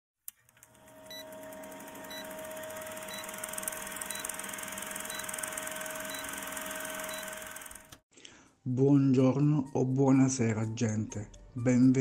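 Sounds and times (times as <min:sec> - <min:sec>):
film projector whirring and clattering: 0:00.4 - 0:08.0.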